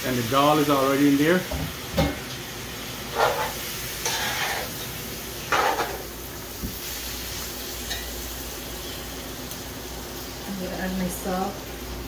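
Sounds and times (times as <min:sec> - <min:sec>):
frying pot sizzling: 0:00.0 - 0:12.0
metal spoon scraping pot: 0:03.1 - 0:04.7.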